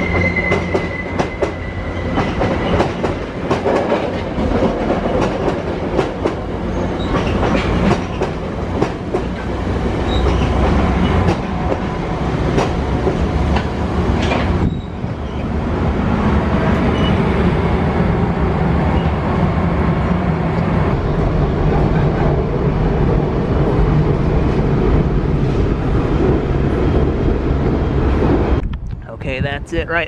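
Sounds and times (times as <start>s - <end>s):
train wheels rumbling on rail: 0.0s - 29.5s.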